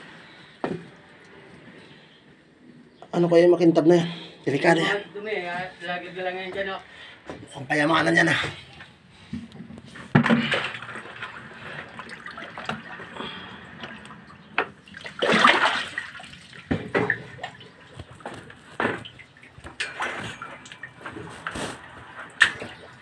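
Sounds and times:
water sloshing and splashing: 8.5 - 23.0.

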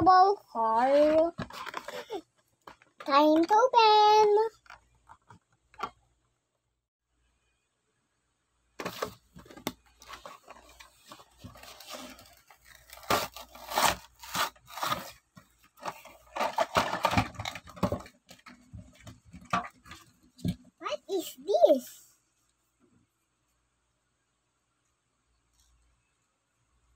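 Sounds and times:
plastic blister crackling: 8.8 - 20.0
cardboard ripping: 11.4 - 15.2.

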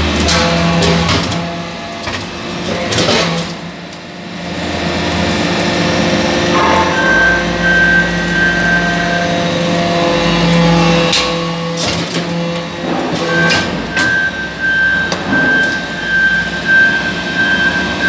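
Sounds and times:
high steady whine: 6.5 - 9.4.

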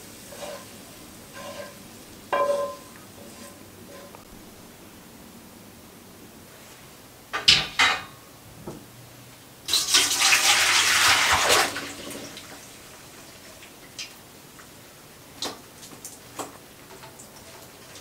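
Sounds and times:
water splashing into a metal colander: 9.7 - 12.5.

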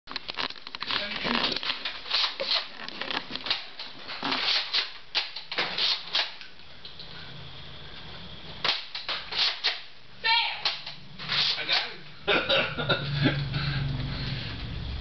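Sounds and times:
toy blaster clicking: 8.6 - 9.9.

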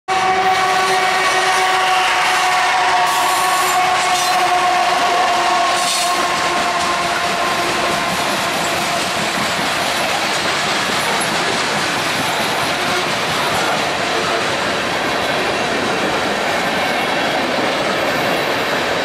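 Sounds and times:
freight train rumbling past: 0.1 - 19.0.

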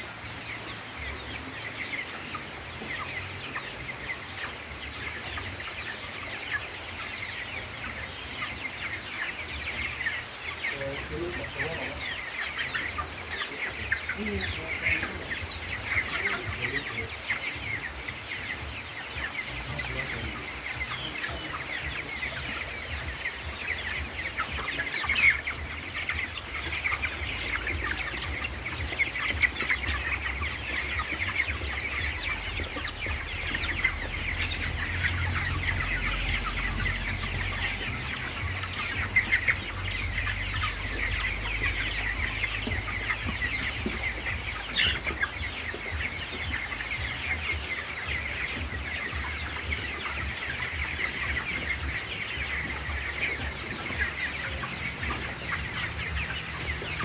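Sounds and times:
chickens peeping and clucking: 0.0 - 57.0.

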